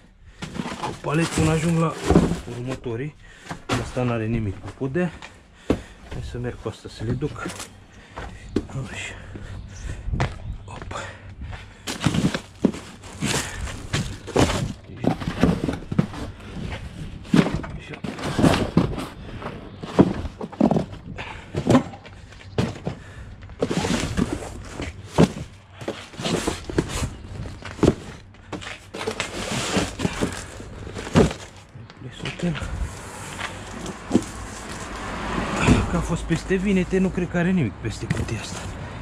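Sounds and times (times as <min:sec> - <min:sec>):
boxes thudding and knocking: 0:00.3 - 0:39.0
footsteps: 0:19.9 - 0:36.3.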